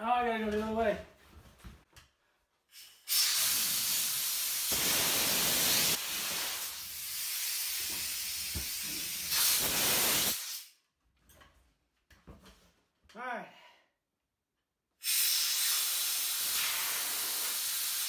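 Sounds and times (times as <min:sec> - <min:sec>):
high-pressure air hissing from valve: 0:02.7 - 0:10.8, 0:15.0 - 0:18.0.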